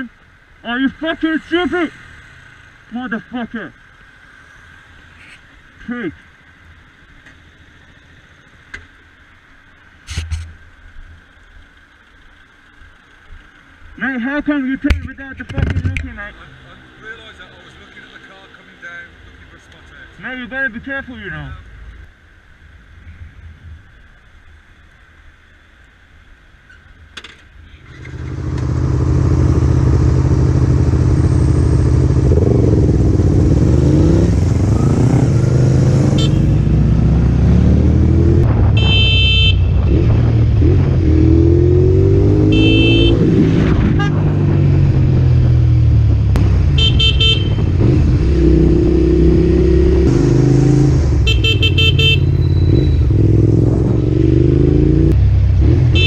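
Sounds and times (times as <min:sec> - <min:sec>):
motorcycle engine accelerating: 0:27.8 - 0:56.0
short horn beeps: 0:36.2 - 0:36.7, 0:38.8 - 0:39.7, 0:42.4 - 0:43.2, 0:51.2 - 0:53.1.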